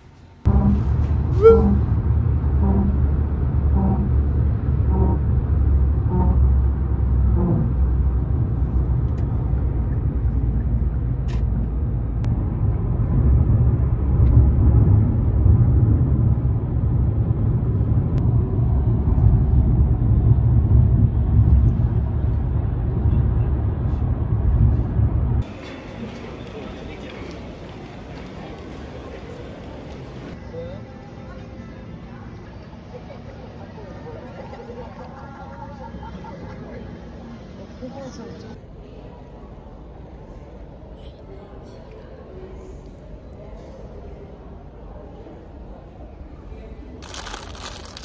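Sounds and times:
car road rumble: 0.3s - 30.4s.

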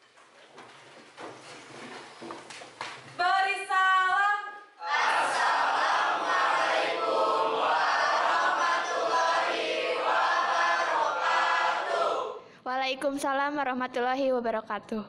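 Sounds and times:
students chanting in unison: 4.8s - 12.4s.

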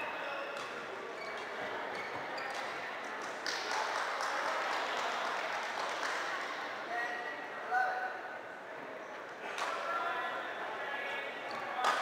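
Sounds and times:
court shoes squeaking: 0.0s - 3.1s, 11.3s - 12.0s.

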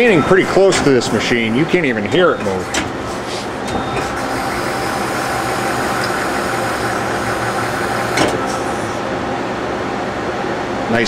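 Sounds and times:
machine running hum: 0.0s - 10.9s
lathe tool turret indexing: 2.4s - 9.0s.

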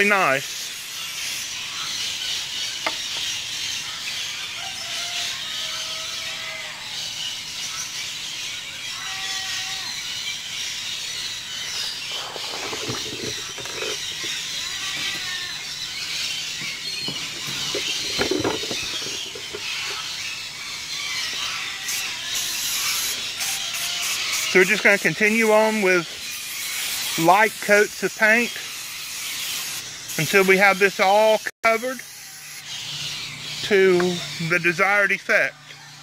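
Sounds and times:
birds calling and chattering: 0.0s - 36.0s
knocks or rustles: 12.2s - 14.4s, 16.6s - 20.0s.

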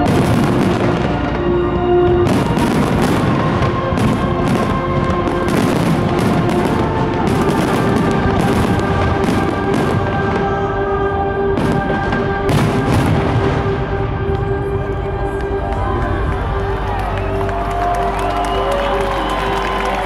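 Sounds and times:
music playing: 0.0s - 20.0s
firework shells bursting and crackling: 2.1s - 10.7s.

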